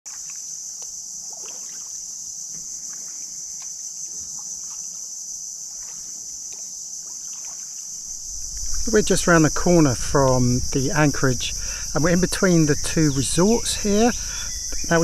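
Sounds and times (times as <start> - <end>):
paddle dripping and splashing: 0.1 - 9.0
high-pitched insect buzzing: 0.1 - 15.0.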